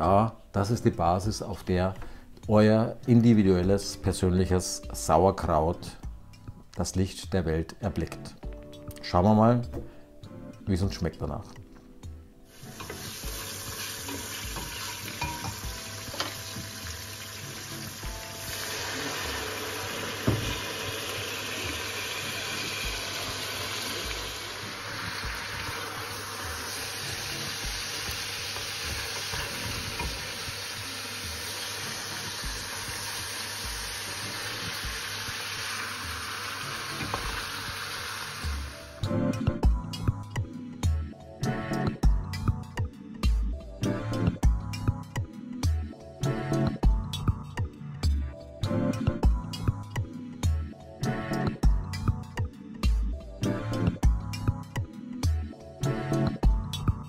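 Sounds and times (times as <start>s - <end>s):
food sizzling in a pot: 12.5s - 39.0s.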